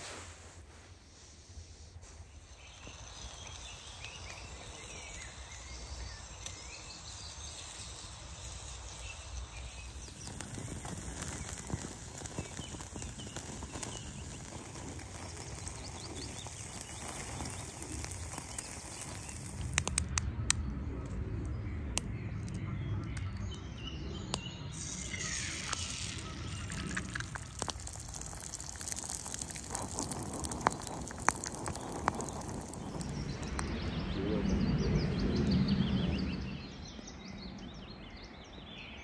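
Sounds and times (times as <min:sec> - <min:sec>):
wood fire crackling: 0:00.0 - 0:20.6, 0:24.8 - 0:33.9
bacon sizzling on a grill: 0:02.1 - 0:20.0, 0:24.8 - 0:33.6
birds calling: 0:02.3 - 0:19.8, 0:22.8 - 0:36.8.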